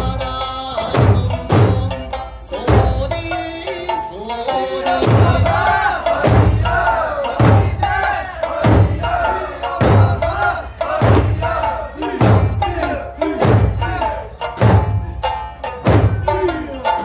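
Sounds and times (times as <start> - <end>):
group singing and chanted calls: 0.0 - 17.0
big drums struck: 0.9 - 2.1, 5.0 - 17.0.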